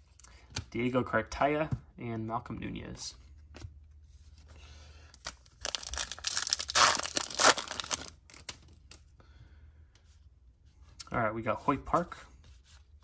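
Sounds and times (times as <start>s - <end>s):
foil wrapper tearing and crinkling: 5.2s - 8.6s.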